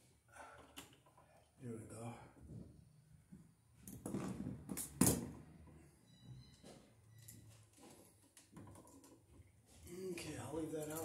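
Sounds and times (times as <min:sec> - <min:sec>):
hand tools clattering on wood floor: 0:10.6 - 0:11.0.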